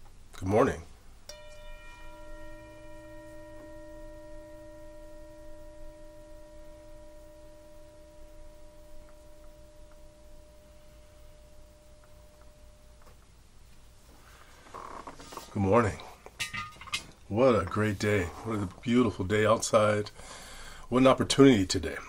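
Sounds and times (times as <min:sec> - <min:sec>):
metal singing bowl ringing: 0:01.3 - 0:13.1, 0:15.9 - 0:20.0.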